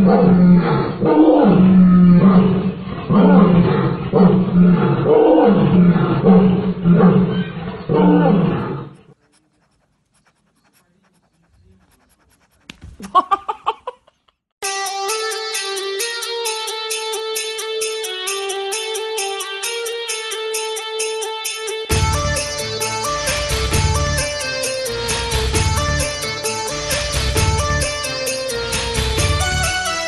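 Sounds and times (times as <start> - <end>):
music: 14.6 - 30.0.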